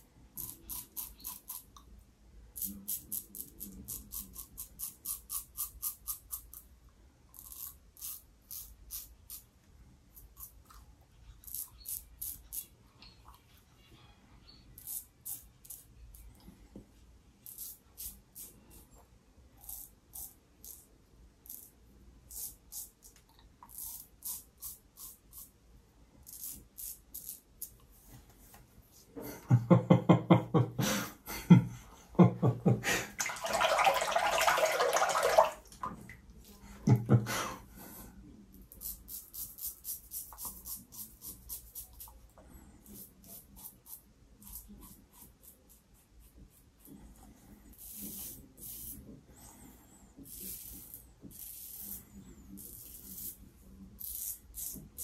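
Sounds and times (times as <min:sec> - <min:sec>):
water running and splashing: 0:33.1 - 0:36.0
razor scraping stubble: 0:38.7 - 0:42.2.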